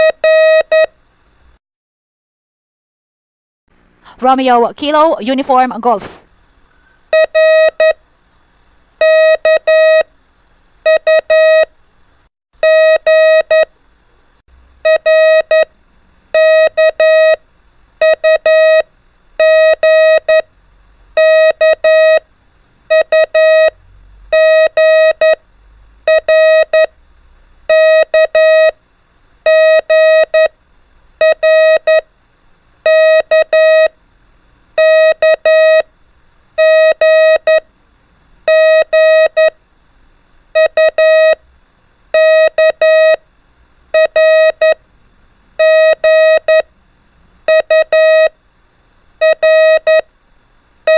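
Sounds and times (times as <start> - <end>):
morse code beeps: 0.0 - 0.9, 7.2 - 8.0, 9.0 - 10.1, 10.9 - 11.7, 14.9 - 15.7, 16.4 - 17.4, 18.0 - 18.8, 19.4 - 20.4, 21.2 - 22.2, 22.9 - 25.4, 26.1 - 26.9, 27.7 - 28.8, 29.5 - 30.5, 31.2 - 32.0, 32.9 - 33.9, 34.8 - 35.8, 36.6 - 37.6, 38.5 - 39.6, 40.6 - 41.4, 42.2 - 43.2, 44.0 - 44.8, 45.6 - 46.7, 47.5 - 48.3, 49.2 - 50.0.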